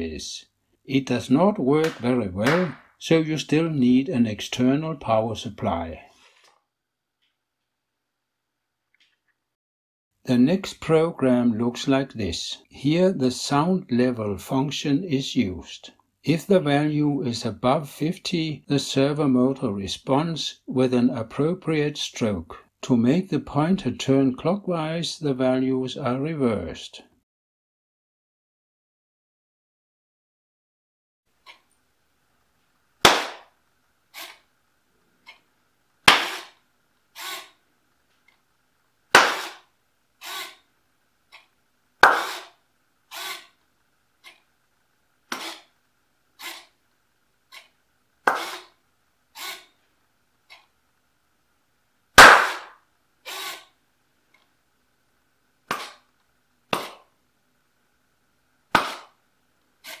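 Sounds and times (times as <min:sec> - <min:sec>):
sharp hand cracks: 0:36.1 - 0:36.5, 0:39.2 - 0:39.6, 0:52.2 - 0:52.8
servomotor swinging pointer: 0:40.2 - 0:40.6, 0:41.3 - 0:43.5, 0:45.3 - 0:45.7, 0:48.3 - 0:48.7.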